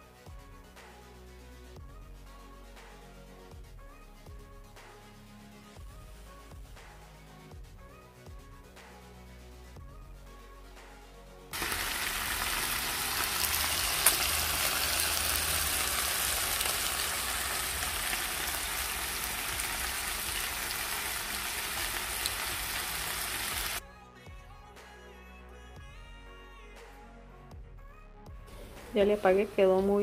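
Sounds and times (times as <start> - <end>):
soft background music: 0.0 - 30.0
fish sizzling in a frying pan: 11.6 - 23.8.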